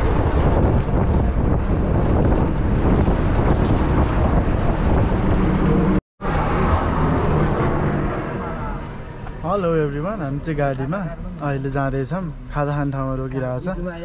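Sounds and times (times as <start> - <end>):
wind buffeting microphone: 0.0 - 8.2
bus engine and tyre noise: 0.0 - 14.0.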